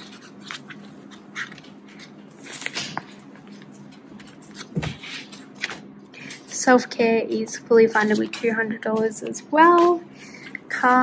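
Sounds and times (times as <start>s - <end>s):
plastic crinkling and rustling: 0.0s - 6.4s.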